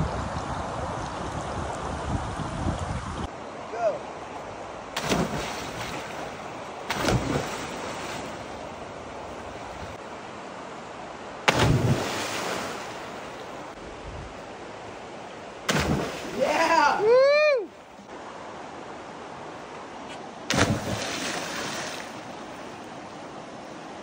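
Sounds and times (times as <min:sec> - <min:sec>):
rushing water: 0:00.0 - 0:24.0
splashes into water: 0:05.0 - 0:08.4, 0:11.5 - 0:13.4, 0:15.7 - 0:17.0, 0:20.5 - 0:22.3.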